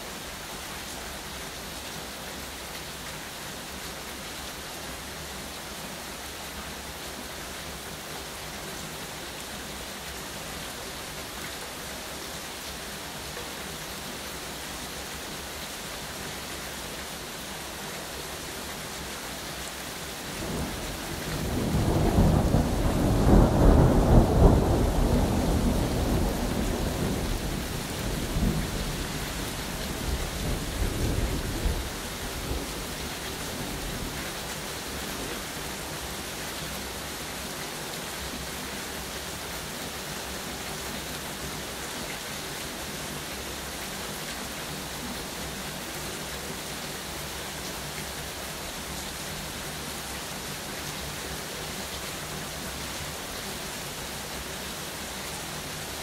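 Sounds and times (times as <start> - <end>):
steady rain falling: 0.0 - 56.0
thunder rumbling: 21.4 - 28.9.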